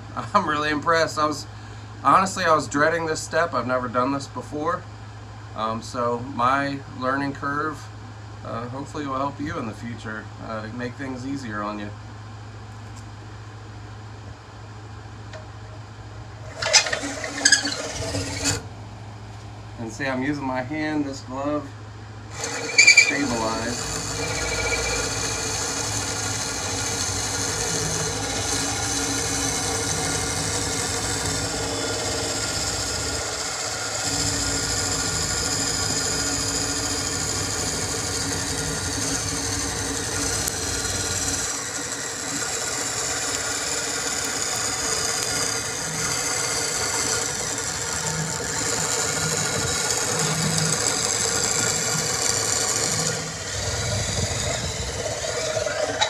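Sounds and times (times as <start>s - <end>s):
electric drill whining: 16.4s - 18.7s, 22.3s - 56.0s
wood rasping against cutter: 16.4s - 18.7s, 22.3s - 56.0s.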